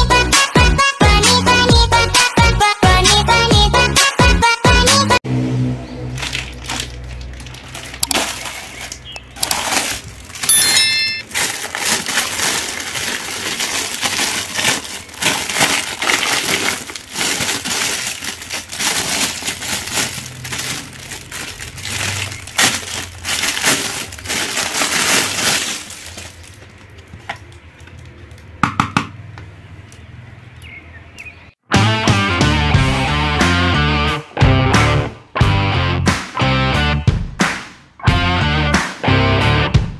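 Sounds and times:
plastic wrapping crinkling: 0:06.1 - 0:28.5.

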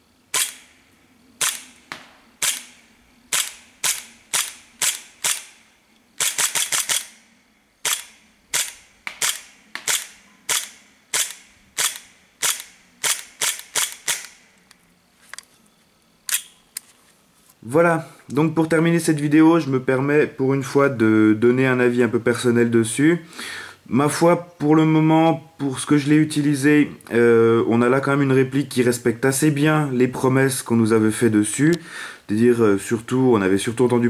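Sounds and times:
airsoft pistol shots: 0:01.4 - 0:05.6, 0:06.2 - 0:07.2, 0:07.8 - 0:14.4.

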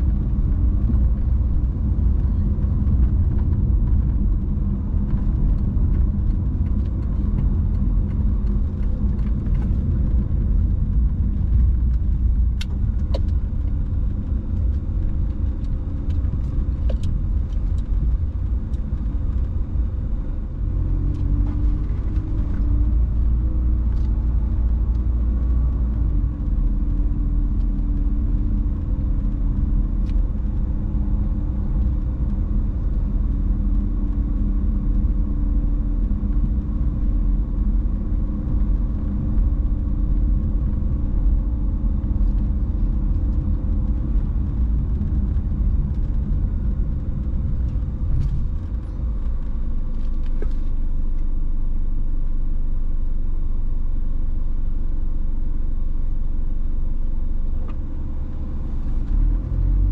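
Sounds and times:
car engine rumble: 0:00.0 - 0:59.9.

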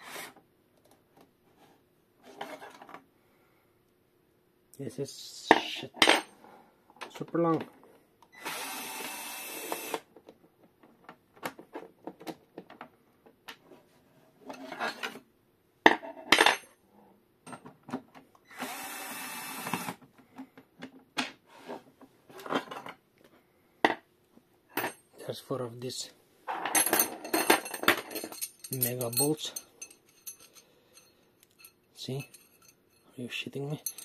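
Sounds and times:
electric screwdriver running: 0:08.4 - 0:10.0, 0:18.5 - 0:20.0
steel bolt clinking on metal: 0:26.7 - 0:33.0, 0:33.6 - 0:34.0
handling clicks and rattles: 0:26.9 - 0:30.6.

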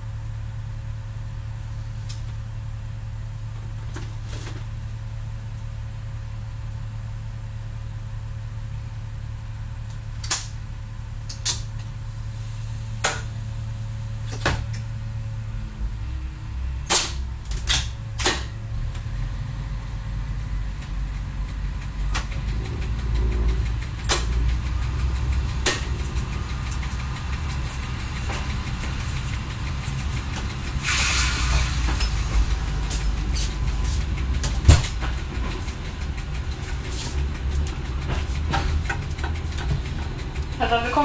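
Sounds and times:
diesel engine low rumble: 0:00.0 - 0:41.0
wheels knocking on track: 0:16.9 - 0:41.0
brief hiss: 0:30.8 - 0:31.9.

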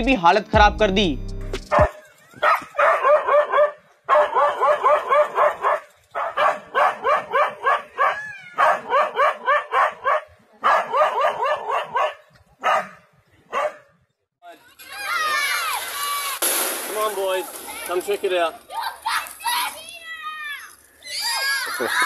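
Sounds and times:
dog barking rapidly: 0:01.7 - 0:13.9.

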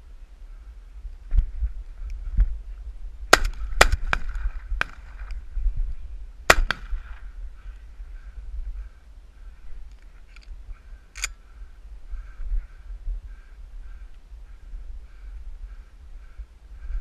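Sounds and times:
shotgun shots echoing: 0:03.3 - 0:05.2, 0:06.5 - 0:07.3.

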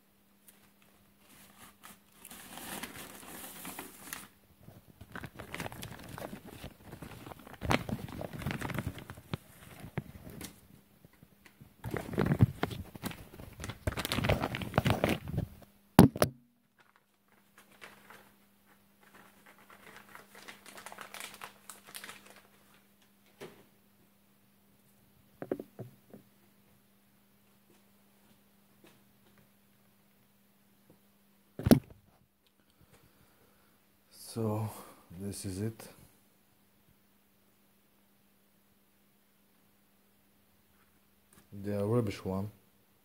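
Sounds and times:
plastic packaging crinkling: 0:00.5 - 0:10.6, 0:11.5 - 0:15.6, 0:16.7 - 0:23.4.

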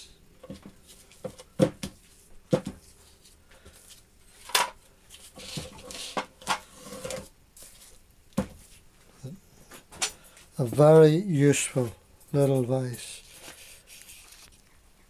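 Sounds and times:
metal scraping on workbench: 0:05.4 - 0:07.3.

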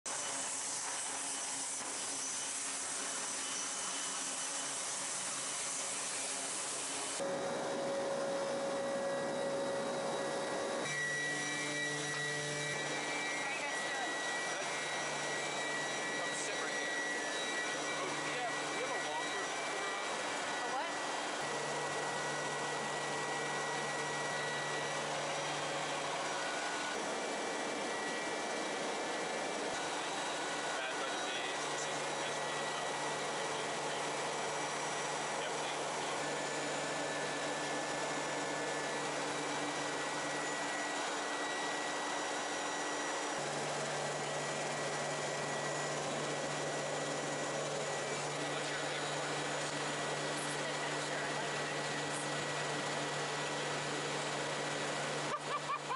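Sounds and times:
turboprop engines droning: 0:12.3 - 0:55.9.

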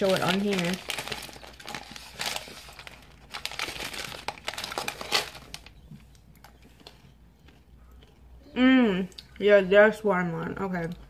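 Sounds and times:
plastic candy bag crinkling: 0:00.0 - 0:07.1.

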